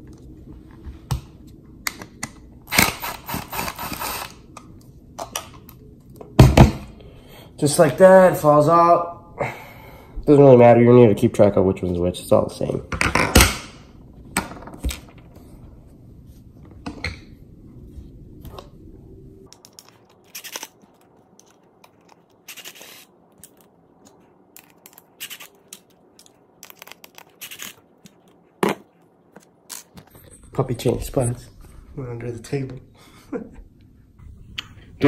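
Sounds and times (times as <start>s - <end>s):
low hum: 13.8s - 35.0s.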